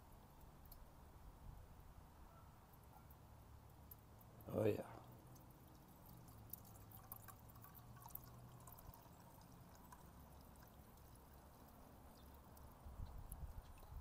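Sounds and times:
liquid trickling into metal cup: 3.7 - 14.0.

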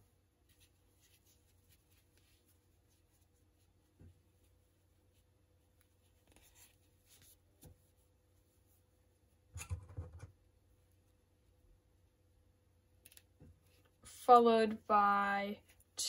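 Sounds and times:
faint steady hum: 0.0 - 16.0
crochet hook scraping yarn: 5.8 - 7.8.

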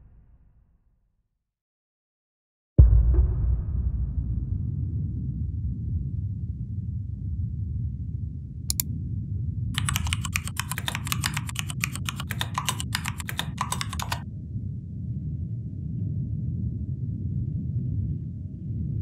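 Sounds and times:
mouse clicks: 9.8 - 14.2
rapid keyboard typing: 9.8 - 14.2.

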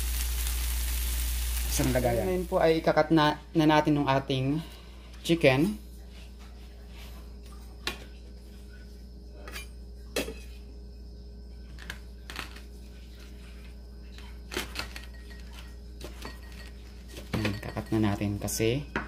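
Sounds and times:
low steady hum: 0.0 - 19.0
utensils and dishes clinking: 14.5 - 18.6.

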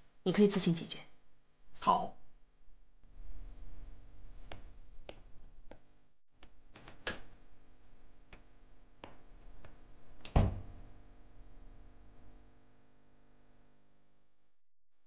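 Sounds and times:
door thud: 10.3 - 10.7.

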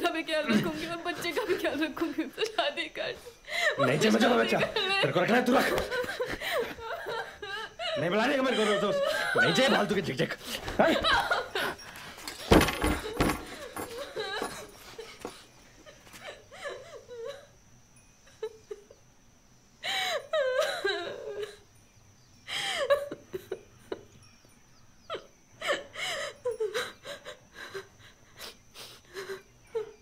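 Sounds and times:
high wavering whimpering cries: 3.1 - 17.6, 19.8 - 21.7, 24.9 - 30.0.

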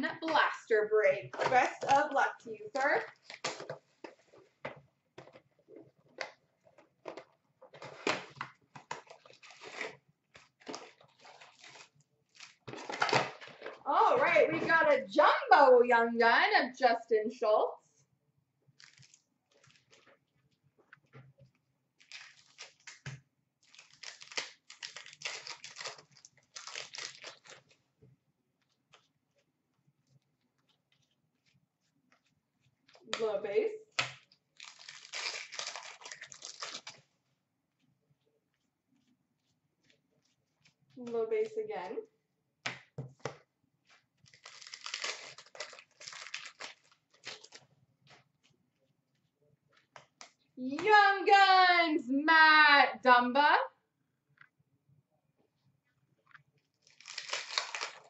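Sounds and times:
plastic wrapper tearing and crinkling: 2.8 - 3.8, 7.0 - 13.8, 18.8 - 20.1, 22.0 - 27.8, 34.0 - 37.1, 44.2 - 48.2, 56.8 - 58.0.

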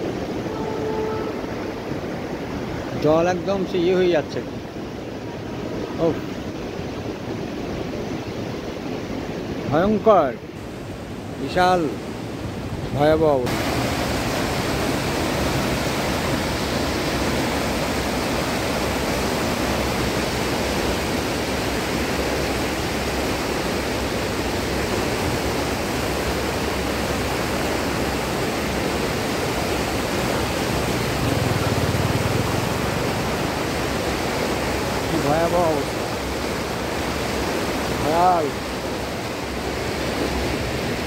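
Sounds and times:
river water rushing: 0.0 - 41.0.

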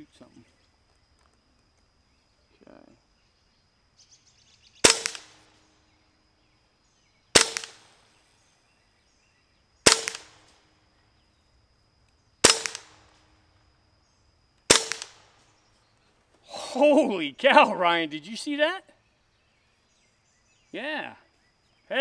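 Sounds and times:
air rifle shots cracking: 4.8 - 5.7, 7.3 - 8.2, 9.8 - 10.7, 12.4 - 13.4, 14.7 - 15.6.

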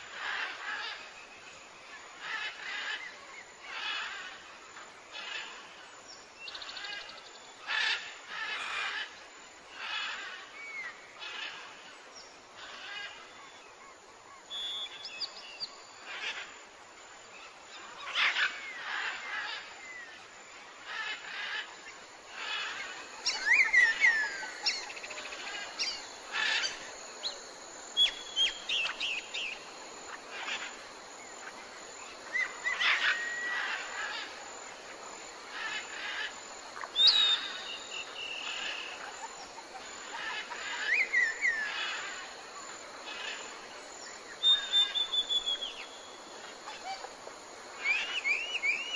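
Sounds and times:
faint steady hiss: 0.0 - 48.9
birds chirping and whistling: 37.0 - 38.9, 44.4 - 45.9.

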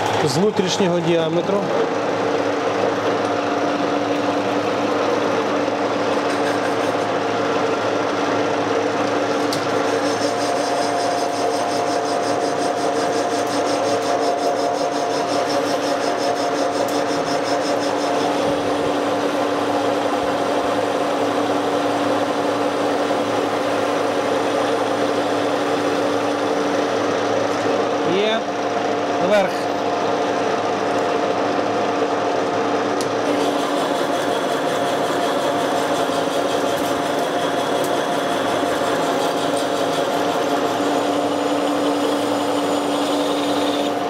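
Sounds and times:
metal lathe humming: 0.0 - 44.0.

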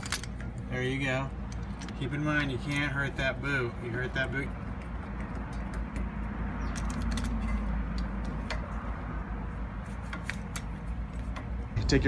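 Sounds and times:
tools clicking and tapping: 4.1 - 9.0, 9.8 - 11.7.

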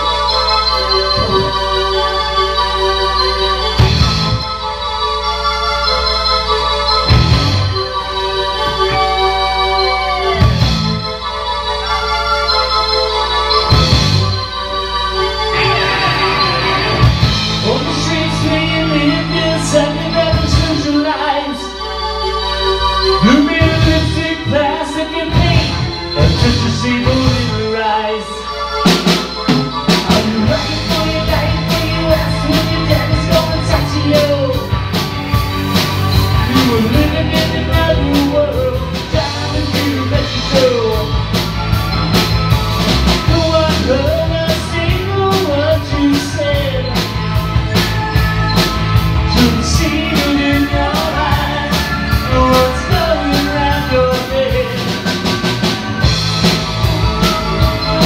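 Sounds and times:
lead guitar melody: 0.0 - 58.0
rock band music: 0.0 - 58.0.

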